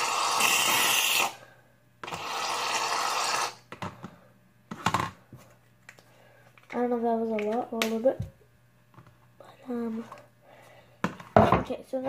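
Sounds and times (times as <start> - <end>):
aerosol can hissing: 0.0 - 1.4.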